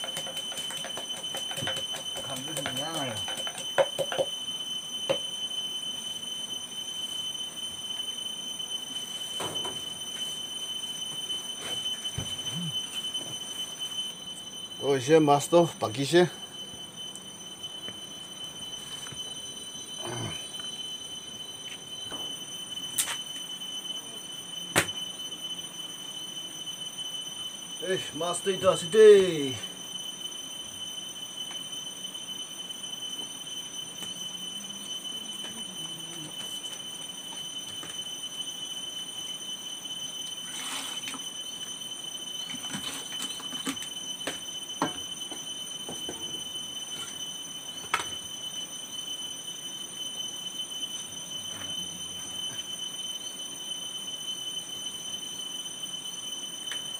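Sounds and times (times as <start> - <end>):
high-pitched tones: 9.2 - 26.5, 33.1 - 39.0.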